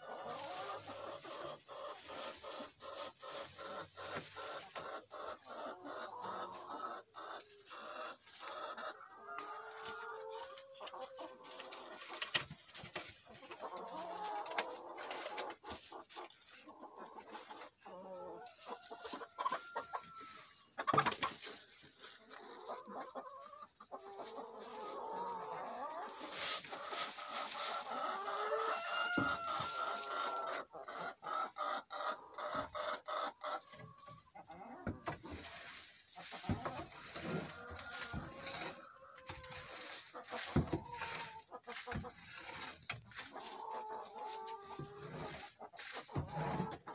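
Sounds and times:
chickens clucking: 0.0s - 46.9s
bedding scraped from wooden box: 35.1s - 43.6s, 44.6s - 46.9s.

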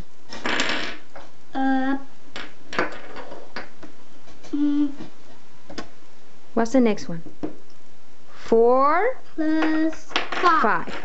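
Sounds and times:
person humming: 1.5s - 2.1s, 4.4s - 5.1s.

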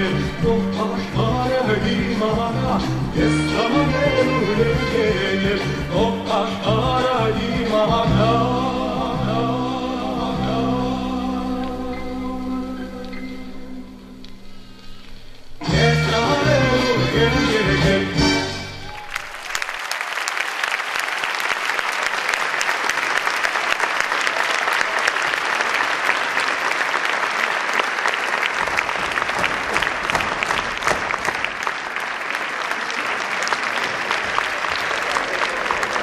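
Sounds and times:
large audience applauding: 18.8s - 36.0s.

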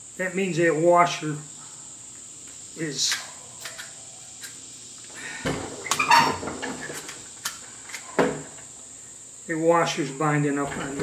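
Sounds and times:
metal barrel scraping and clunking: 10.6s - 11.0s.

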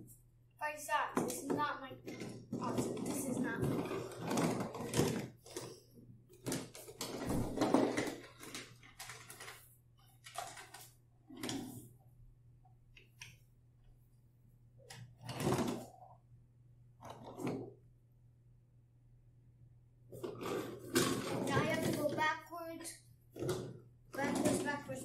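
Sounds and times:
toy train rolling on wooden track: 1.2s - 5.6s, 6.5s - 9.6s, 20.2s - 22.2s, 24.2s - 25.0s.

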